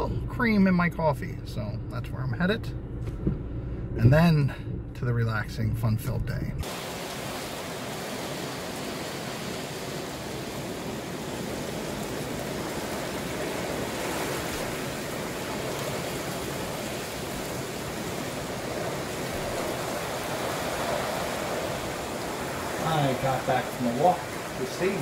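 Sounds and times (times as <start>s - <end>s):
gusting wind: 6.6s - 25.0s
rain: 6.6s - 25.0s.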